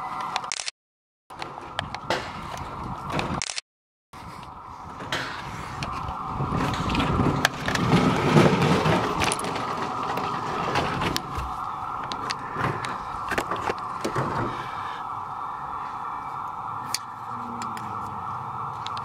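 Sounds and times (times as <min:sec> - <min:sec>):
steady hum: 0:04.3 - 0:19.0.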